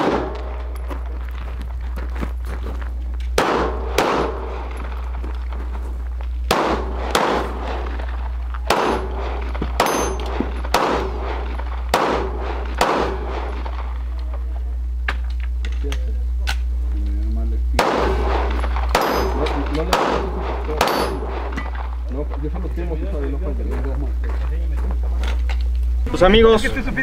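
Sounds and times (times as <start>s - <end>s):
pistol shots with echo: 0.0s - 1.2s, 3.4s - 5.3s, 6.5s - 14.1s, 17.8s - 22.0s.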